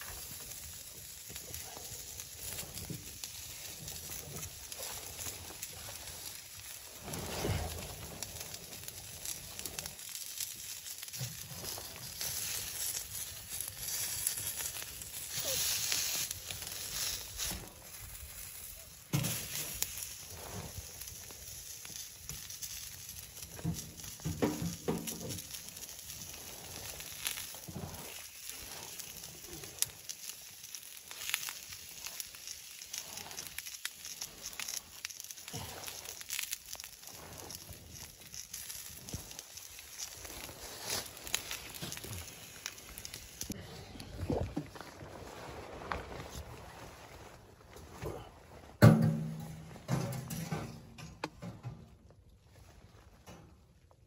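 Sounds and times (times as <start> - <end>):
faint fire crackles: 0.0 - 54.0
rustling handling noises: 31.1 - 52.1.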